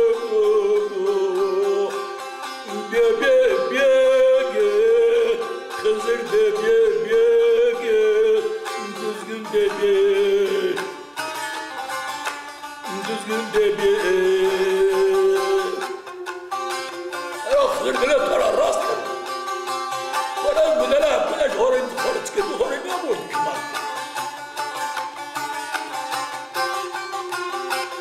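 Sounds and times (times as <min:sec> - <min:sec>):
man singing: 0:00.0 - 0:11.1, 0:12.8 - 0:16.1, 0:17.3 - 0:19.2, 0:20.4 - 0:23.9
plucked long-necked lute melody: 0:00.0 - 0:28.0.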